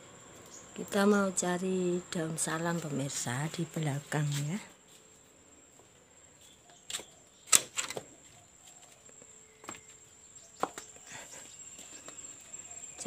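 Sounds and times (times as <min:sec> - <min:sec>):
high-pitched insect trill: 0:00.0 - 0:13.0
footsteps knocking and scuffing: 0:10.6 - 0:11.0.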